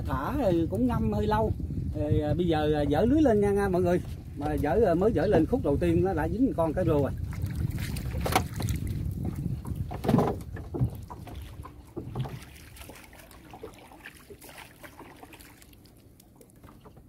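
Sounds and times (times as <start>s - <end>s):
knocks against boat: 7.9s - 12.6s.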